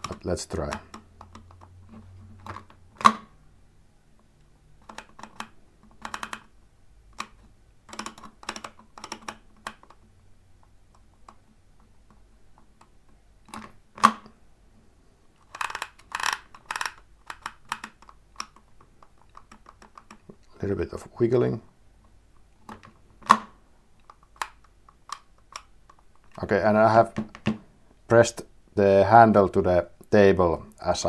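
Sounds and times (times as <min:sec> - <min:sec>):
label maker wheel clicking: 0:15.4 - 0:20.2.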